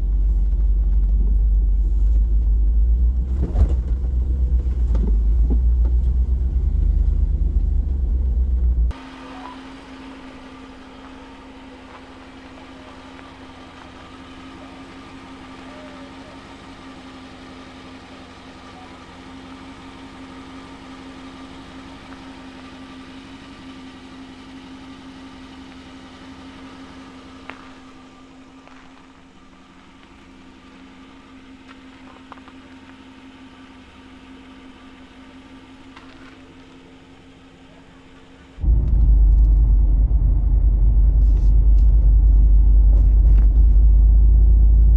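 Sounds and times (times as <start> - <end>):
loud low rumble: 0.0 - 9.0, 38.6 - 44.9
car engine running: 0.0 - 44.9.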